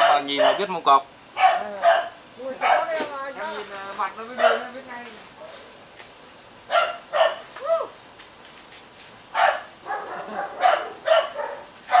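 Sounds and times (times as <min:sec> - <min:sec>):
dog yelp: 0:00.0 - 0:00.7, 0:01.4 - 0:02.9, 0:04.4 - 0:04.7, 0:06.7 - 0:07.5, 0:09.4 - 0:12.0
dogs barking: 0:00.0 - 0:00.8, 0:01.4 - 0:03.0, 0:04.3 - 0:04.8, 0:06.7 - 0:07.5, 0:09.3 - 0:12.0.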